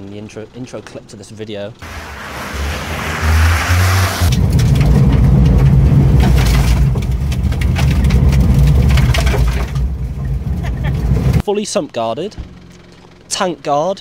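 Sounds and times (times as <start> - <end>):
car engine drone: 1.8 - 11.4
tyres crunching on gravel: 1.8 - 11.4.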